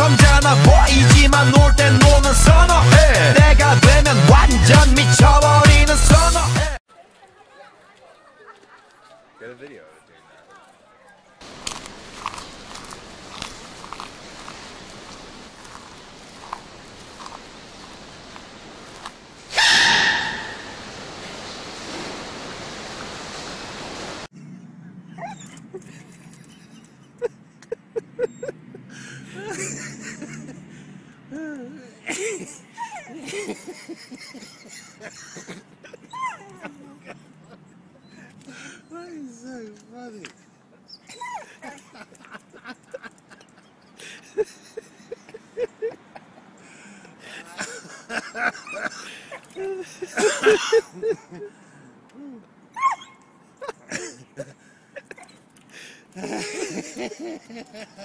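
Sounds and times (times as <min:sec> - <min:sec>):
recording hiss: 0:11.4 - 0:24.3
dog barking: 0:19.5 - 0:20.8
dog whining and yipping: 0:25.1 - 0:25.9, 0:36.1 - 0:36.7, 0:40.9 - 0:41.5, 0:52.8 - 0:53.3.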